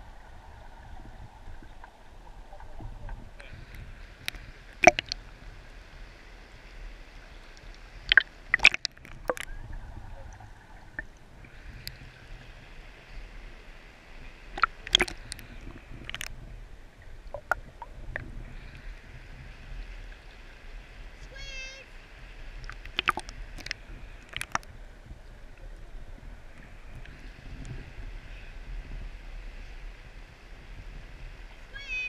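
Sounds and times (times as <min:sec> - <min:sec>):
shallow river water flowing: 0:00.0 - 0:32.0
sharp knocks and splashes: 0:04.8 - 0:05.2, 0:08.0 - 0:09.5, 0:14.5 - 0:16.3, 0:22.6 - 0:24.7.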